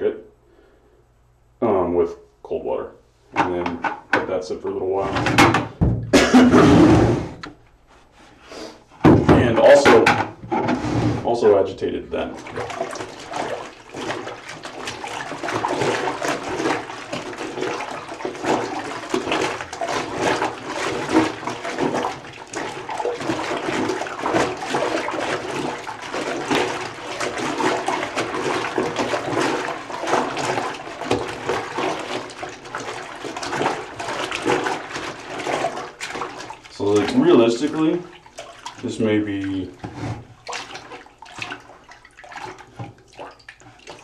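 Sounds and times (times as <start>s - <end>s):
water sloshing in a bucket: 9.0s - 44.0s.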